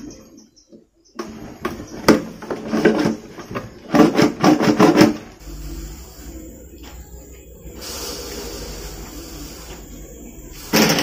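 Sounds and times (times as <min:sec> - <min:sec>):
plastic parts knocking and clattering: 0:01.2 - 0:05.4.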